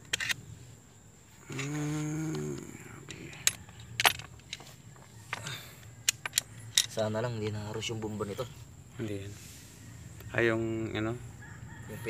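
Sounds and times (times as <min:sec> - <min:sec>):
man humming: 0:01.4 - 0:03.4.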